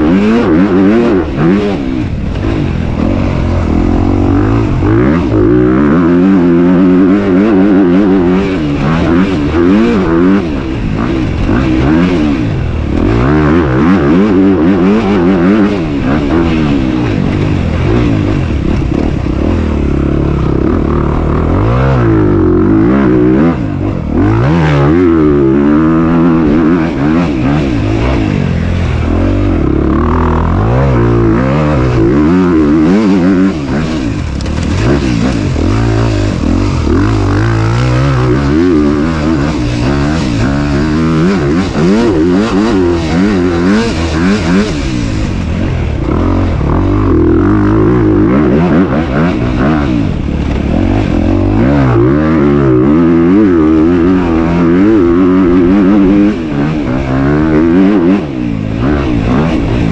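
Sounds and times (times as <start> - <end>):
motorbike engine revving: 0.0 - 59.9.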